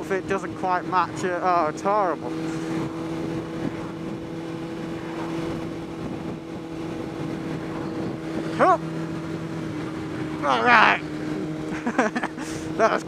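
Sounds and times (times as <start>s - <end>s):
motorcycle engine running: 0.0s - 13.0s
wind rush: 2.4s - 11.6s.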